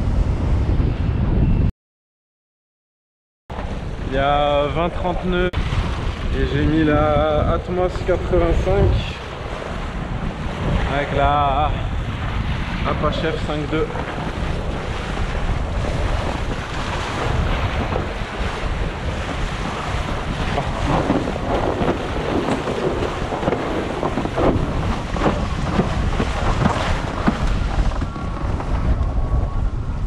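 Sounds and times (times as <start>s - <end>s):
wind buffeting microphone: 0.0s - 1.7s, 3.5s - 30.0s
board rushing across sea: 3.5s - 30.0s
water slapping against hull: 5.6s - 29.2s.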